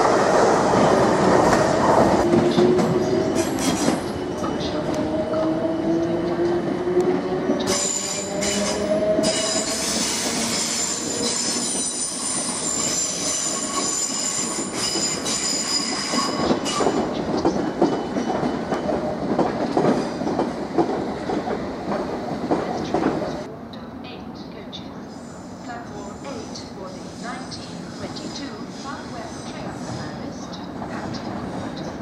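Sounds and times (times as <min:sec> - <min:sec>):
train wheels squealing: 0:07.6 - 0:17.2.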